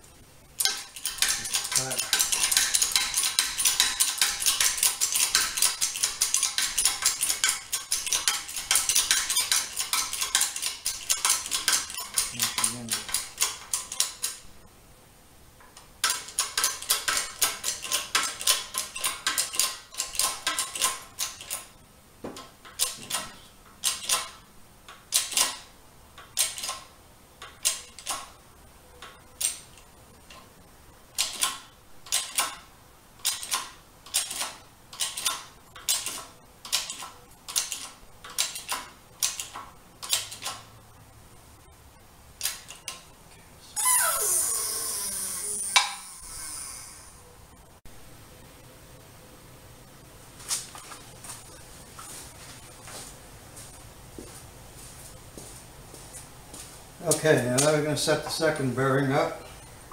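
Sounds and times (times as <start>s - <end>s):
hydraulic jack metallic clicks: 0.6s - 14.4s, 31.2s - 32.6s, 33.2s - 40.6s.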